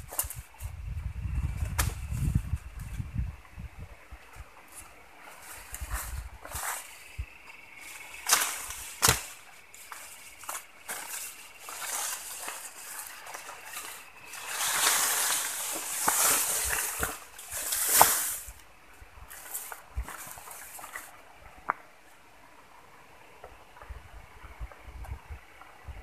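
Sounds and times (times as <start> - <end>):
footsteps through tall grass: 4.2 - 21.2.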